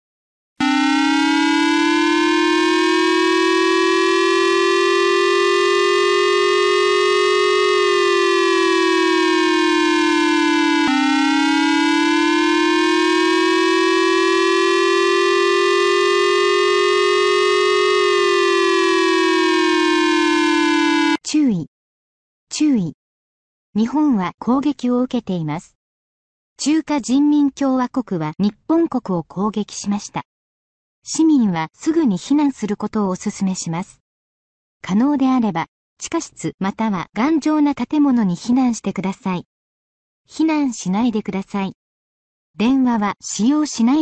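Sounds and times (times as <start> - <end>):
air-raid siren wailing: 0.6 - 21.2.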